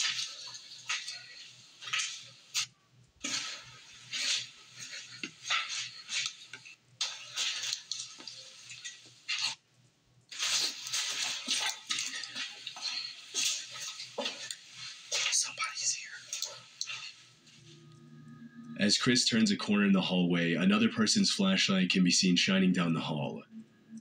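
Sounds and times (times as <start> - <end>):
rustling and crunching over debris: 0.0 - 9.6, 10.3 - 17.4.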